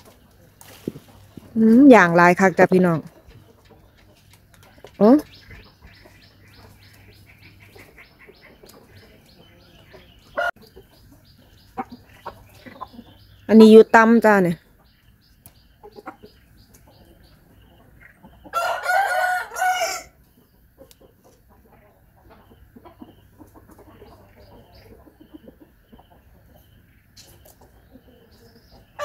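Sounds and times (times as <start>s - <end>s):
small birds chirping: 0.0s - 29.0s
rooster crowing: 18.5s - 20.2s.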